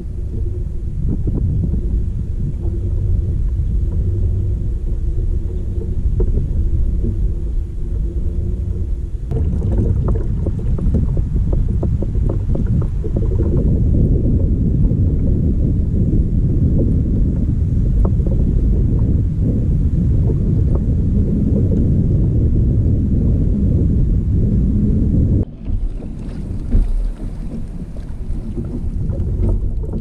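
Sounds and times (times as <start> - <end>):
water slapping against hull: 0.0 - 15.4, 25.4 - 30.0
wind on microphone: 0.0 - 30.0
knocks against boat: 25.5 - 30.0.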